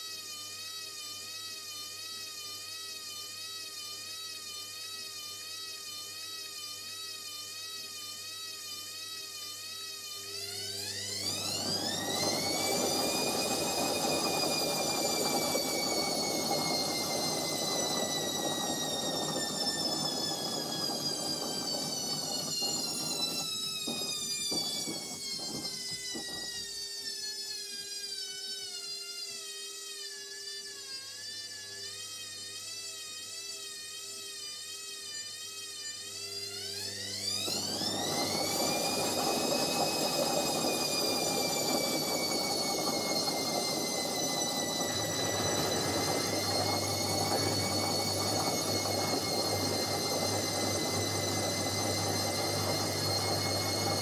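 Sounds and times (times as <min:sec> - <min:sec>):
washing machine motor whine: 0:00.0 - 0:54.0.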